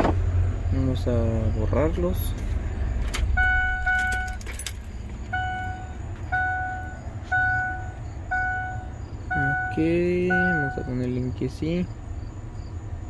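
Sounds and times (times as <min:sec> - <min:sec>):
low rumble in truck cab: 0:00.0 - 0:13.0
dashboard warning chime: 0:03.3 - 0:11.2.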